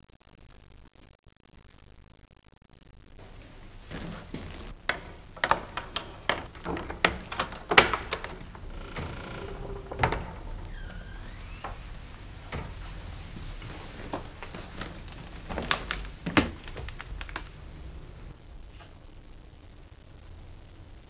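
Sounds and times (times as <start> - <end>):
footsteps on a staircase: 3.2 - 18.3.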